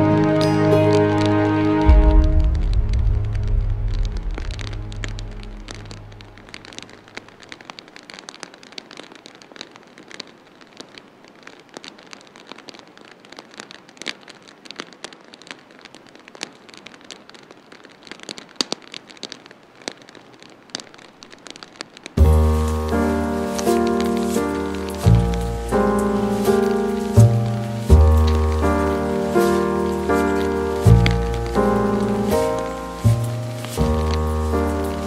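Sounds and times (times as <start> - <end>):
music: 0.0 - 6.6, 22.2 - 35.0
rain falling: 0.0 - 35.0.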